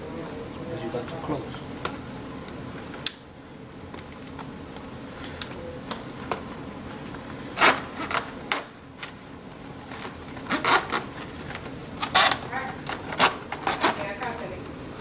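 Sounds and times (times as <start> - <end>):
plastic packaging crackling and snapping: 9.8 - 15.0.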